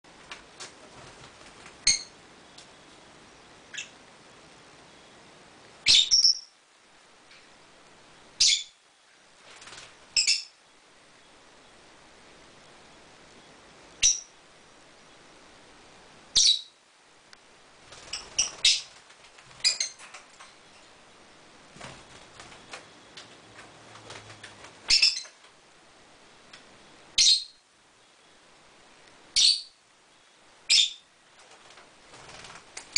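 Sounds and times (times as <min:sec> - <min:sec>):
shrill bird calls: 0:05.8 - 0:06.6, 0:24.9 - 0:25.3, 0:27.2 - 0:27.6.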